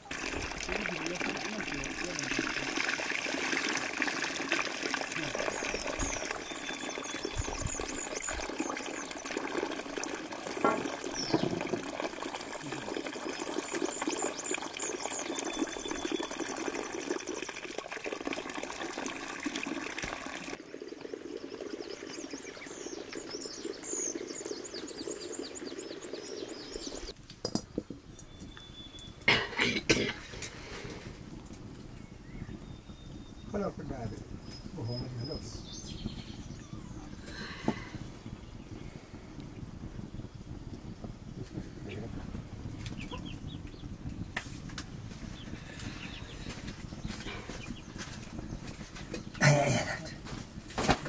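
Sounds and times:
water rushing: 0:00.0 - 0:27.2.

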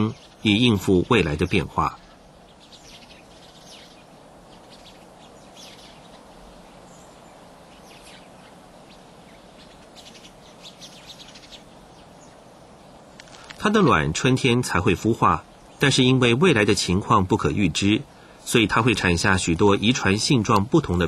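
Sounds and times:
high bird chirps: 0:00.0 - 0:12.4
low steady hiss: 0:00.0 - 0:21.0.

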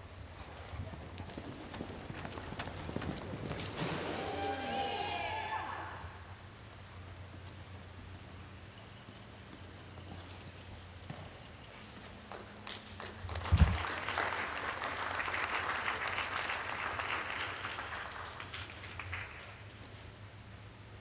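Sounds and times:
spectators applauding: 0:12.3 - 0:19.6.

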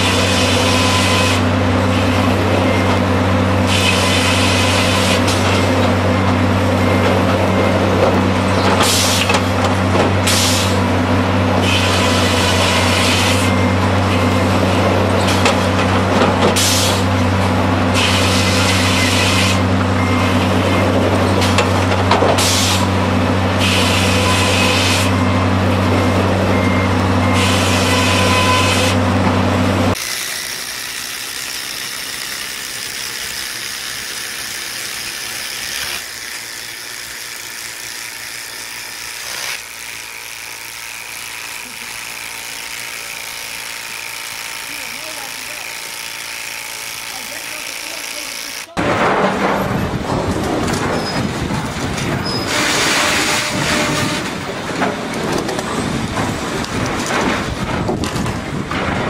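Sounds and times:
wood-processing machinery humming: 0:00.0 - 0:59.0.

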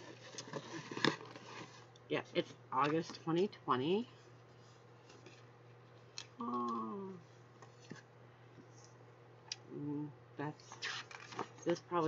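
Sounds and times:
card and paper rustling: 0:00.0 - 0:01.9, 0:10.6 - 0:12.0
woman humming mm: 0:06.4 - 0:07.3, 0:09.6 - 0:10.2.

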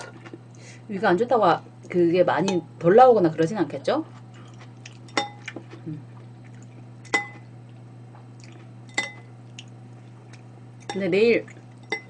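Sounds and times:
spoon clinking against ceramic bowl: 0:08.9 - 0:09.3.

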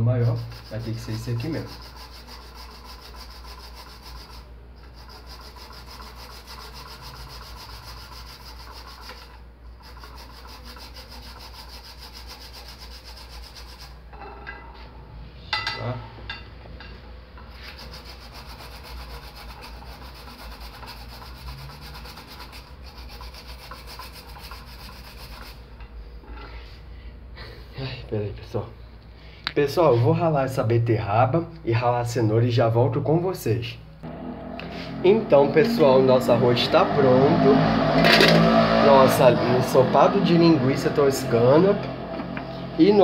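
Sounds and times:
rasping grater scrape: 0:00.0 - 0:14.0, 0:17.5 - 0:25.6.

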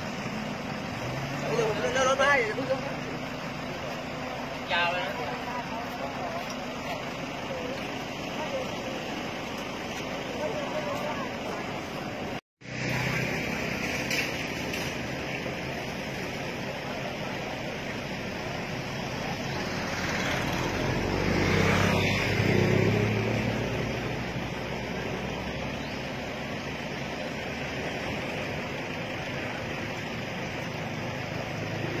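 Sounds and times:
background traffic hiss: 0:00.0 - 0:32.0
motor vehicle passing: 0:00.0 - 0:32.0.

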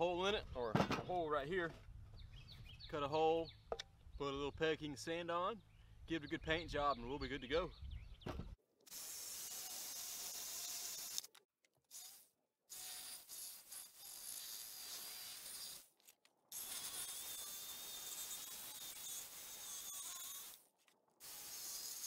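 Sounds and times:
power tool cutting wood: 0:08.9 - 0:11.3, 0:11.9 - 0:15.9, 0:16.5 - 0:20.6, 0:21.2 - 0:22.0
jigsaw sawing: 0:11.9 - 0:15.9, 0:16.5 - 0:20.6, 0:21.2 - 0:22.0.

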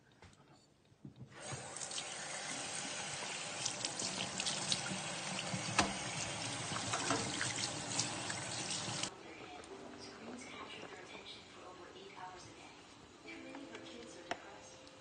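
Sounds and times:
tap water running into sink: 0:01.4 - 0:09.1.

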